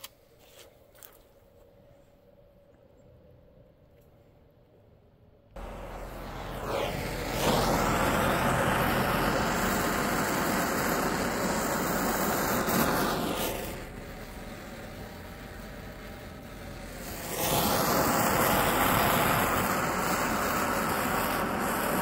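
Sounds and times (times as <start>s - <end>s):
torch flame hissing: 5.6s - 22.0s.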